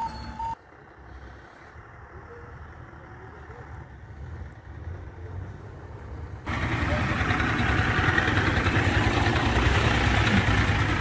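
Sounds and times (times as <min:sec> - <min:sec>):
fire engine idling: 0:06.5 - 0:11.0.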